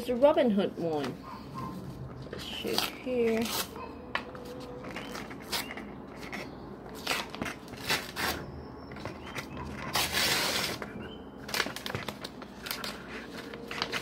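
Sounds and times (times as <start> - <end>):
envelope paper crinkling: 9.0 - 14.0.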